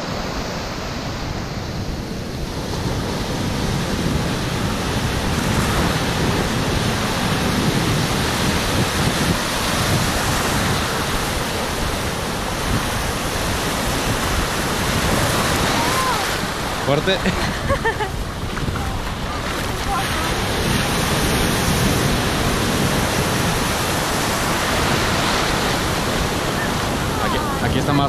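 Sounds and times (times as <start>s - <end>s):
ocean surf breaking: 0.0s - 28.0s
wind buffeting microphone: 0.0s - 28.0s.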